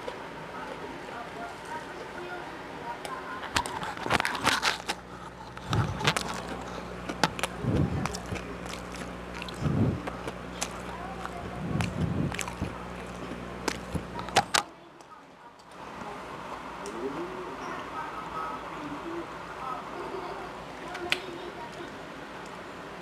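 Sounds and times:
crunchy chewing: 0:03.4 - 0:14.7.

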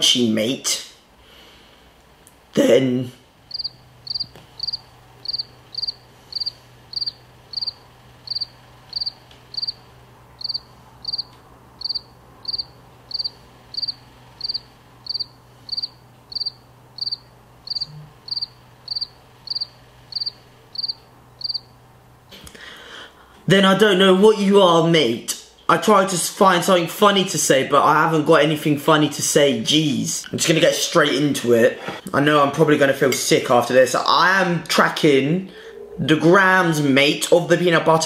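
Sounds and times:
cricket chirping: 0:03.5 - 0:21.8.

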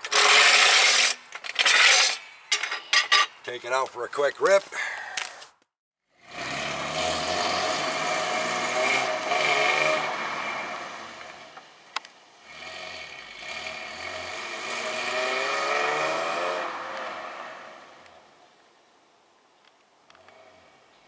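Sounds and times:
car engine and tyres driving: 0:06.2 - 0:18.4.

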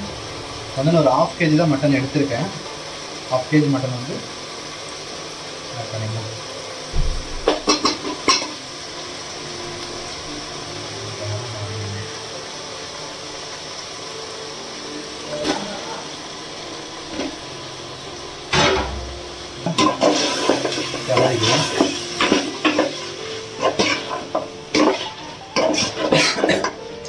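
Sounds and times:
meat sizzling in hot oil: 0:00.0 - 0:27.0
spoon scraping a pan: 0:19.6 - 0:26.8.

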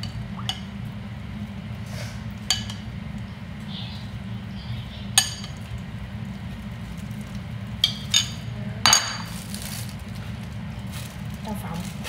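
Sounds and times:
spoon and dishes clinking: 0:07.8 - 0:09.3.

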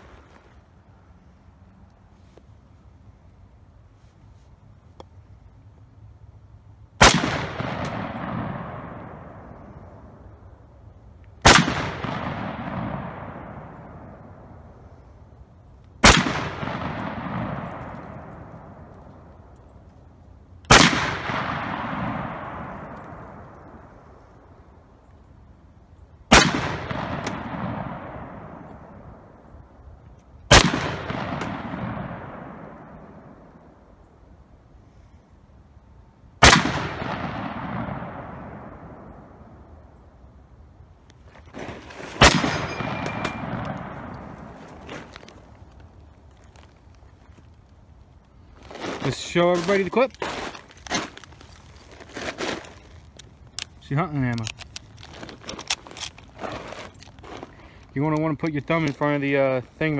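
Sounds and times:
rifle shots with long echo: 0:07.0 - 0:10.6, 0:11.4 - 0:15.2, 0:16.0 - 0:19.6, 0:20.6 - 0:24.9, 0:26.2 - 0:29.9, 0:30.5 - 0:34.2, 0:36.4 - 0:40.2, 0:42.2 - 0:46.6.

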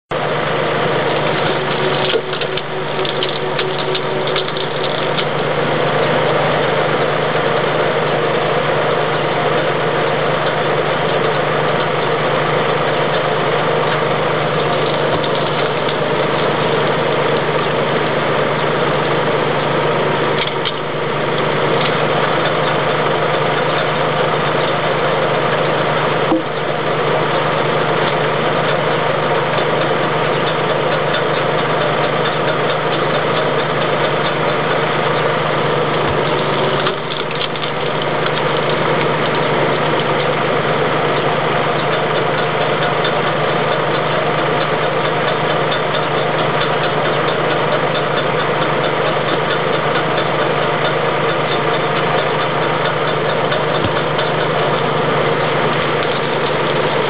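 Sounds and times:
tractor engine running: 0:00.1 - 0:57.0
logs cracking as they split: 0:01.0 - 0:05.4, 0:14.5 - 0:16.5, 0:36.0 - 0:39.4.

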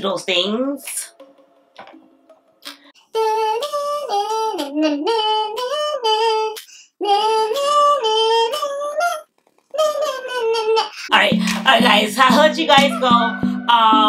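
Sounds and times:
woman singing wordless tune: 0:10.0 - 0:14.0.

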